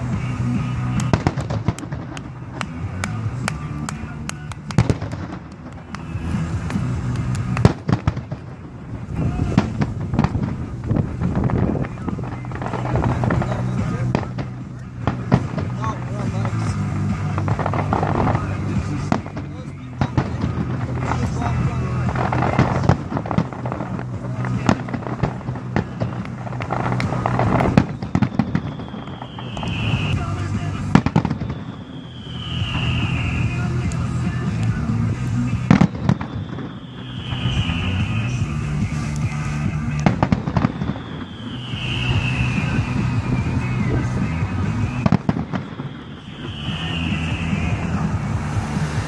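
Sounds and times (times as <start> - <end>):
firework crackles: 0.0 - 49.0
firework shells bursting: 4.6 - 43.6, 44.8 - 48.9.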